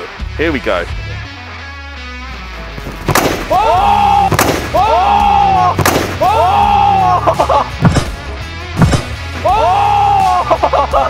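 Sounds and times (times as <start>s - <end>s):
football smashing wooden board: 5.8s - 6.2s.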